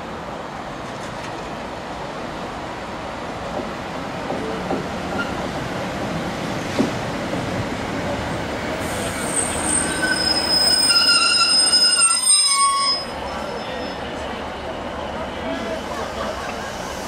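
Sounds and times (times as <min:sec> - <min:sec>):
train engine rumble: 0:00.0 - 0:17.0
train brakes squealing: 0:05.1 - 0:05.4, 0:08.8 - 0:17.0.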